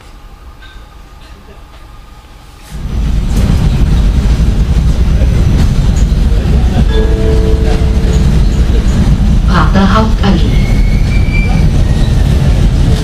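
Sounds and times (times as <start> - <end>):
tram wheels rumbling on rail: 0.0 - 13.0.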